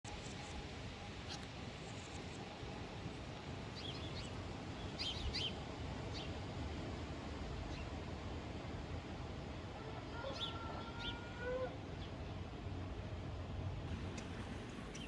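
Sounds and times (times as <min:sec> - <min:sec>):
birds chirping: 0:13.9 - 0:15.0.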